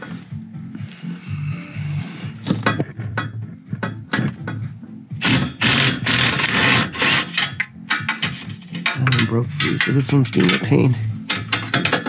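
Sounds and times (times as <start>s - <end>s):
impact wrench hammering: 5.2s - 9.0s.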